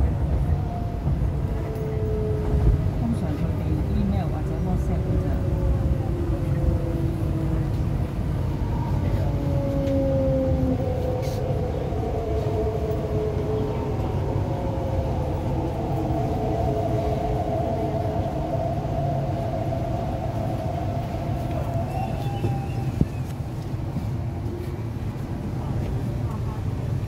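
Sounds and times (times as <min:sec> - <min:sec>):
train low rumble: 0:00.0 - 0:27.0.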